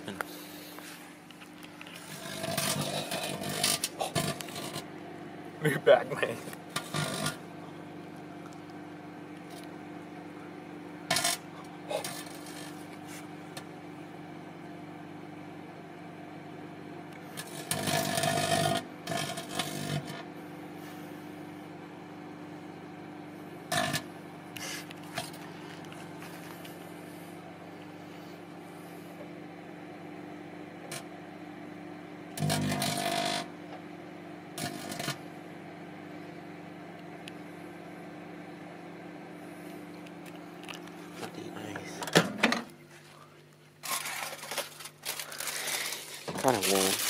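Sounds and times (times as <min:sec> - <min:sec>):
microwave oven humming: 0:00.0 - 0:47.0
sparks crackling in microwave: 0:01.2 - 0:20.4, 0:23.6 - 0:26.9, 0:30.0 - 0:35.9, 0:43.8 - 0:47.0.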